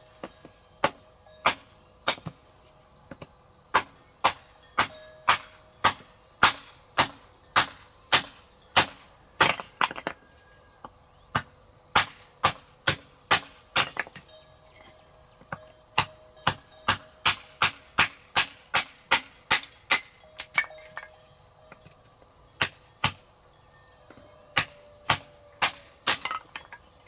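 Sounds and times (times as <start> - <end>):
blade chopping into wood: 3.7 - 10.2, 11.3 - 14.2, 15.5 - 21.1, 22.6 - 23.2, 24.6 - 26.7.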